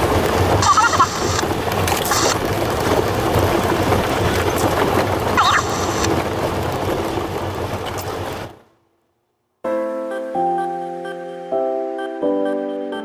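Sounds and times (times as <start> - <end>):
vehicle rumbling over gravel: 0.0 - 8.8.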